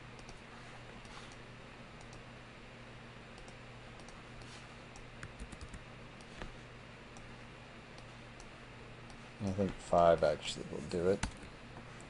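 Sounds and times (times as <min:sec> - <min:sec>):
faint hum and hiss: 0:00.0 - 0:12.0
computer keyboard and mouse clicks: 0:03.4 - 0:05.8.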